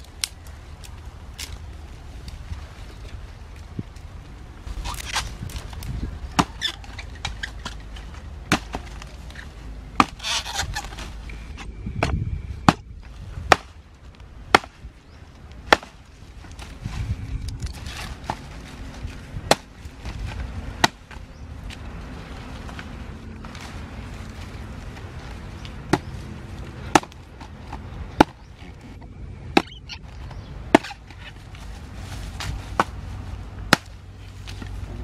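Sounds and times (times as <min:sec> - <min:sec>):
fire crackling: 0:00.0 - 0:10.2
twigs snapping: 0:00.0 - 0:11.1, 0:33.6 - 0:35.0
dry grass rustling: 0:00.0 - 0:35.0.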